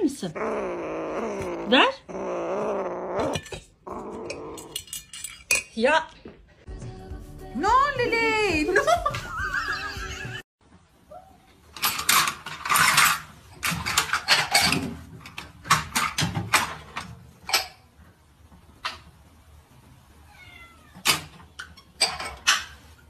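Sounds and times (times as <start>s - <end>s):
things knocking and clattering: 11.6s - 19.2s, 21.0s - 23.0s
cat meowing: 20.3s - 21.0s.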